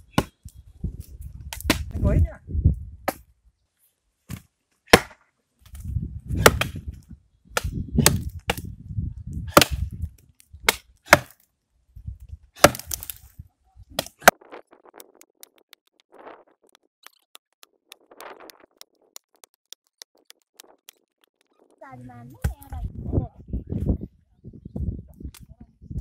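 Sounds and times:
axes chopping wood: 0:04.3 - 0:05.2, 0:06.4 - 0:06.8, 0:07.6 - 0:08.6, 0:09.5 - 0:09.8, 0:10.7 - 0:11.4, 0:12.6 - 0:13.2.

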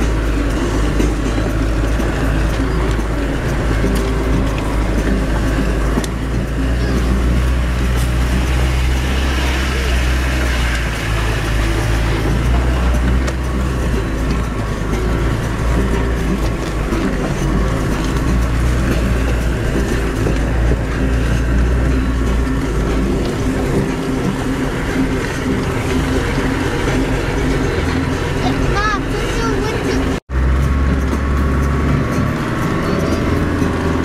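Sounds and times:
engine drone with deep rumble: 0:00.0 - 0:34.0.

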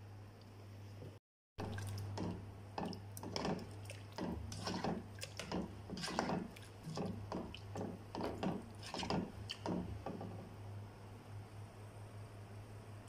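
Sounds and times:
spatula scraping thick curry in pan: 0:03.2 - 0:10.3.

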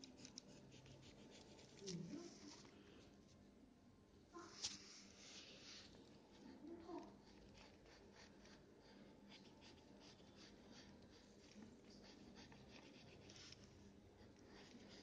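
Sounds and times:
pencil scratching on paper: 0:00.0 - 0:02.7, 0:06.3 - 0:15.0.

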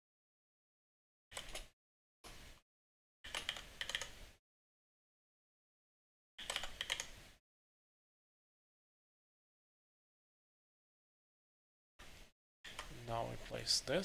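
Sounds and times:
computer keyboard typing: 0:03.3 - 0:04.1, 0:06.4 - 0:07.1.

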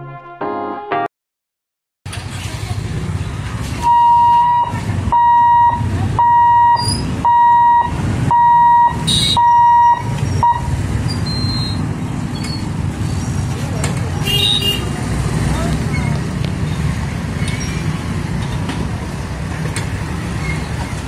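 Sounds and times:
level crossing warning buzzer beeping: 0:03.8 - 0:11.8.

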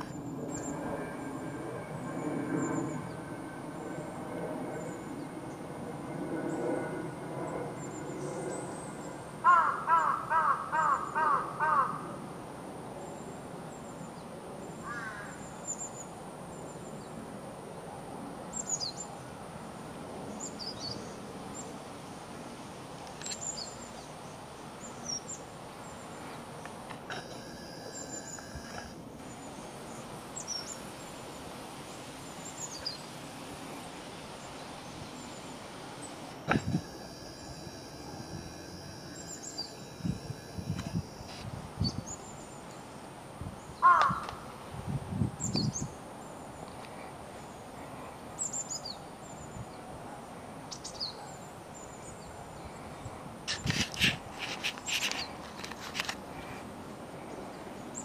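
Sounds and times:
harsh bird calls: 0:09.4 - 0:12.1.

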